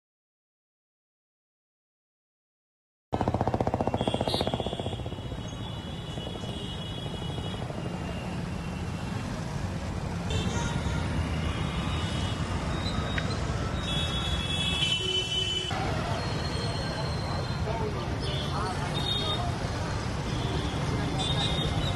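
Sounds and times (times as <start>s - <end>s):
traffic engines and passing vehicles: 3.2s - 21.9s
vehicle horns: 4.0s - 8.3s, 10.3s - 12.6s, 13.7s - 15.8s.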